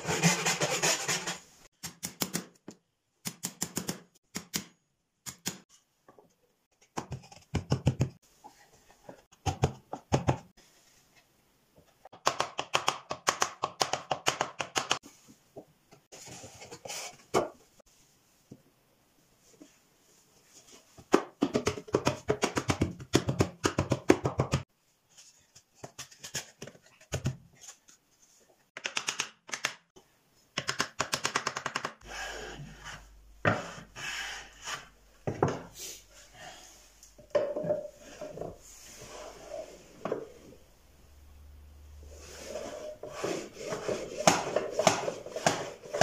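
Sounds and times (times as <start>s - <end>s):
low hum: 40.5s - 42.2s.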